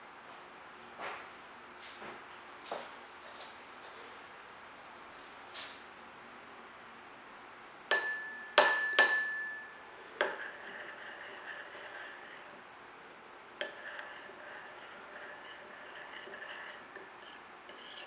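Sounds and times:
glass clinking: 0:07.9 - 0:10.4.

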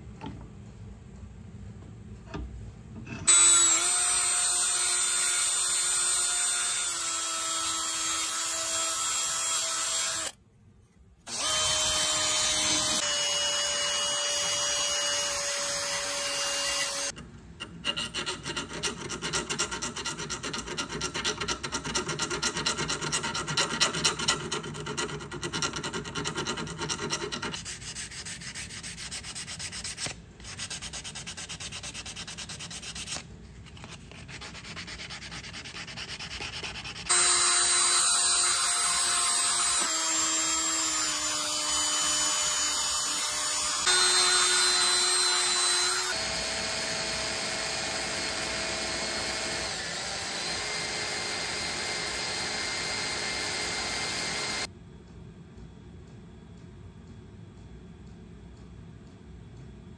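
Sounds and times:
rotary tool whining: 0:11.3 - 0:19.7, 0:37.0 - 0:54.7
scratchy polishing on steel: 0:17.8 - 0:37.1.

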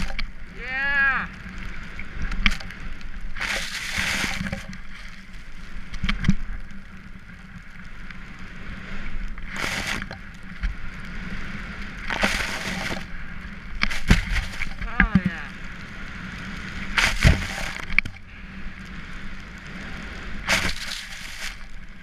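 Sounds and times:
skis hissing through powder snow: 0:03.4 - 0:05.8, 0:08.5 - 0:10.1, 0:11.1 - 0:13.1, 0:16.4 - 0:17.9, 0:19.0 - 0:22.0.

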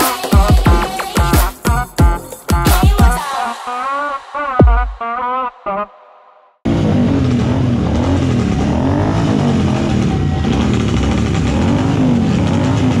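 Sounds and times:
motorcycle engines revving: 0:06.7 - 0:13.0.

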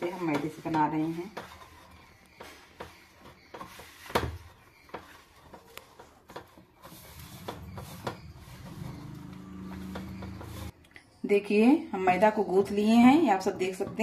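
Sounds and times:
hand mixing dough in steel bowl: 0:00.0 - 0:10.8, 0:12.0 - 0:14.0.

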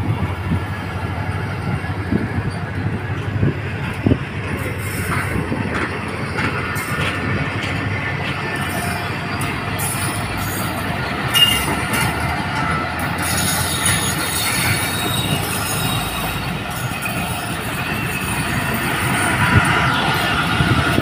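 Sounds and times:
train wheels rumbling on rails: 0:00.0 - 0:21.0
high wheel squeal: 0:08.5 - 0:20.8.

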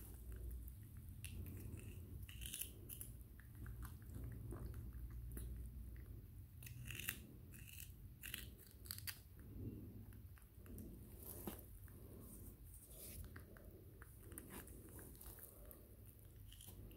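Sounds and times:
monkey crunching cucumber: 0:00.0 - 0:09.4
low steady hum: 0:00.0 - 0:16.9.

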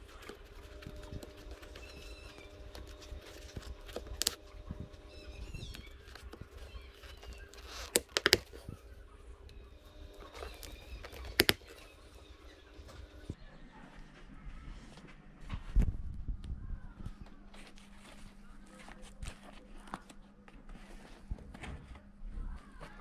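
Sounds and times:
low hum: 0:00.0 - 0:18.8
sharp clicks: 0:00.8 - 0:08.7.

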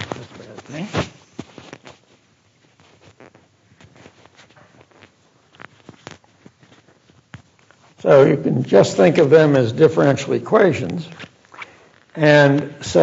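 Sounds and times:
microphone handling clicks and rustles: 0:00.0 - 0:08.0, 0:10.8 - 0:13.0.

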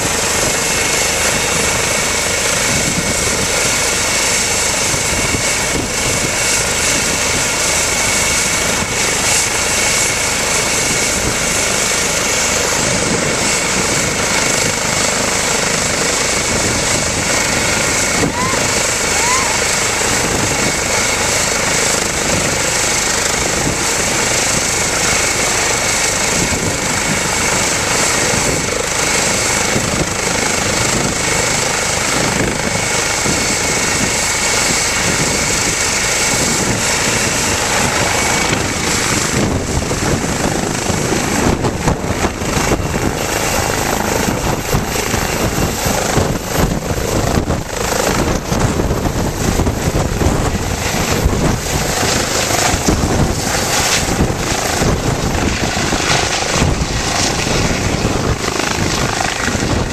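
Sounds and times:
helicopter rotor noise: 0:00.0 - 0:59.9
helicopter turbine whine: 0:00.0 - 0:59.9
rotor downwash buffeting microphone: 0:16.2 - 0:20.9, 0:35.0 - 0:59.9.

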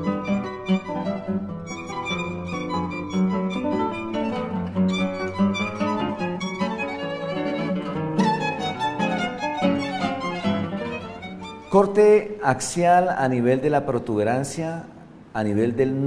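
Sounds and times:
instrumental intro music: 0:00.0 - 0:12.4.

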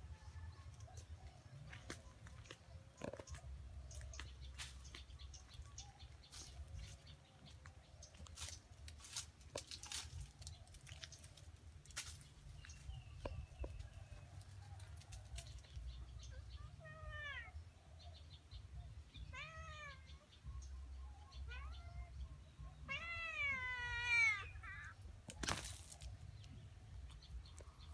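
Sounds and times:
cats rustling in tree branches: 0:03.3 - 0:16.1, 0:22.9 - 0:27.4.

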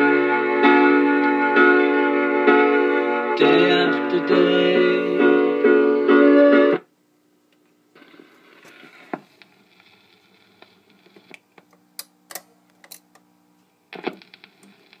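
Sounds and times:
faint steady hum: 0:06.8 - 0:15.0
record player tone arm clicks: 0:10.6 - 0:13.3.

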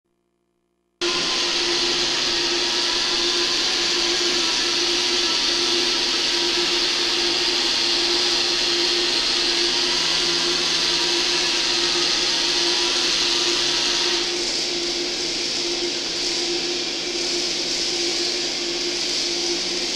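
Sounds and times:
small electric motors whirring: 0:01.0 - 0:14.4.

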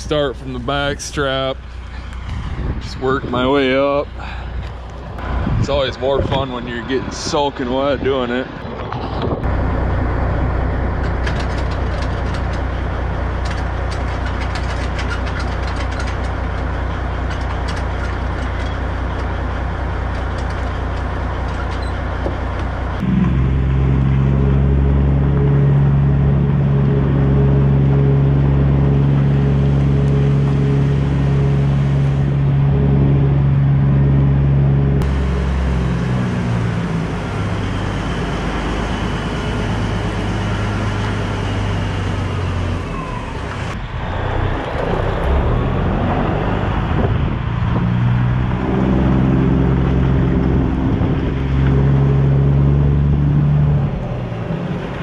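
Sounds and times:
diesel truck engine: 0:00.0 - 0:55.0
light clicks and rattles: 0:13.4 - 0:19.3.

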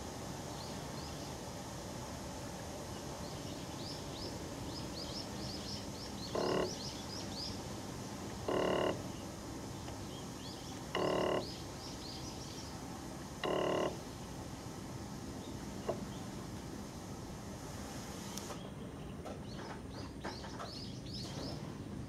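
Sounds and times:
stepper motor buzzing: 0:06.2 - 0:06.9, 0:08.4 - 0:09.1, 0:10.9 - 0:11.6, 0:13.4 - 0:14.0.

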